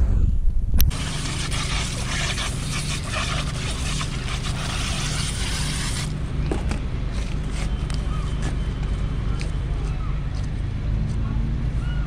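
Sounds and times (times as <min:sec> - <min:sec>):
steady low hum: 0:00.0 - 0:11.6
hose spray nozzle hissing: 0:00.9 - 0:06.3.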